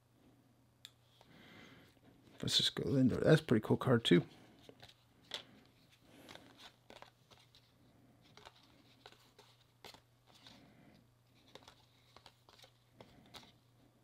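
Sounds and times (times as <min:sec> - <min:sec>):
low steady hum: 0:00.0 - 0:14.0
cards flicking and rustling: 0:04.6 - 0:10.6, 0:11.3 - 0:13.6.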